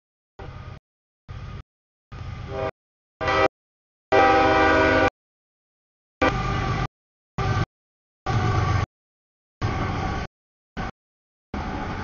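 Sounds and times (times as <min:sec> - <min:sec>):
locomotive air horn chord: 0:02.4 - 0:03.5, 0:04.1 - 0:05.1, 0:06.2 - 0:06.8.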